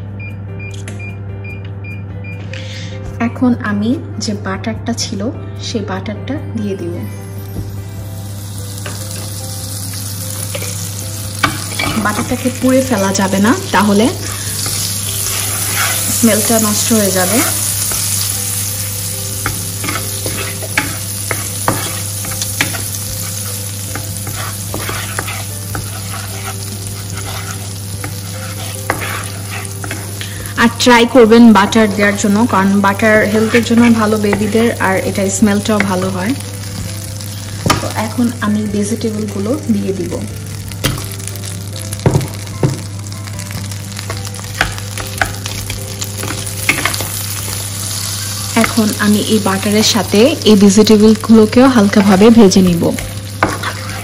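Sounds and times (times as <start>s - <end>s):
butter sizzling in pan: 7.7s - 54.0s
wooden spatula stirring in pan: 14.1s - 18.0s, 23.9s - 30.6s, 53.4s - 54.0s.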